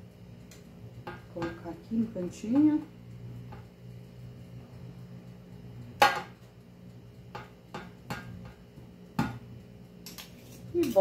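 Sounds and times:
metal spoons clinking on baking pan: 10.0 - 11.0.

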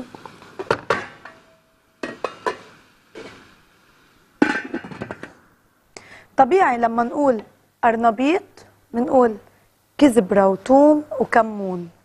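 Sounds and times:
metal cookware clinking: 0.6 - 3.4.

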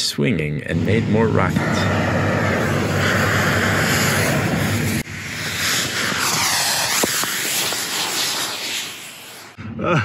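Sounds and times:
rocket motors hissing: 0.9 - 9.6.

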